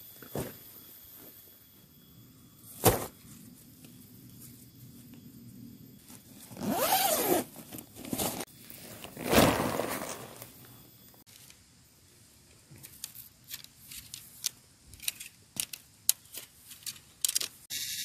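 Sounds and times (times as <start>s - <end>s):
zipper pulled open: 6.5s - 8.4s, 9.1s - 10.5s
nylon rustling: 6.6s - 10.8s.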